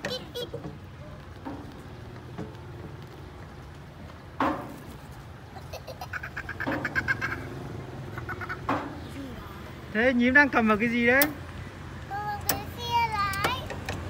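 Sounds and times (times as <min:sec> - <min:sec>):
child giggling: 0:00.0 - 0:00.7, 0:05.5 - 0:08.7.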